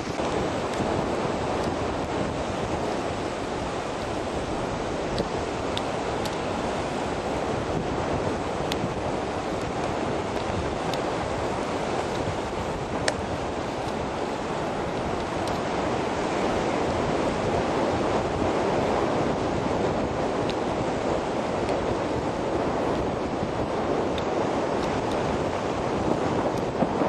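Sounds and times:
sea surf washing: 0.0s - 27.0s
wind buffeting microphone: 0.0s - 27.0s.

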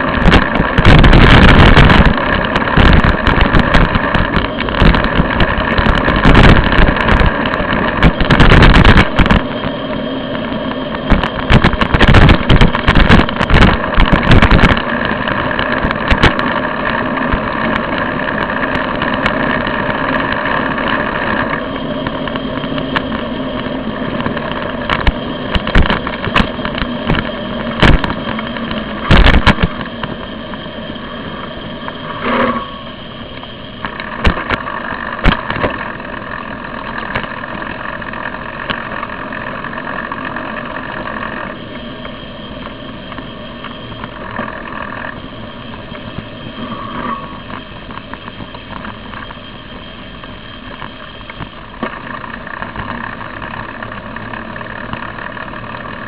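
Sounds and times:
bicycle road noise: 0.0s - 56.0s.

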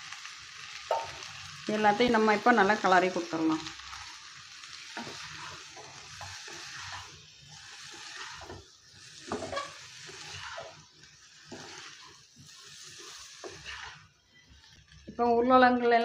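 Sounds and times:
food sizzling: 0.0s - 16.0s
spatula scraping a pan: 3.6s - 15.2s.

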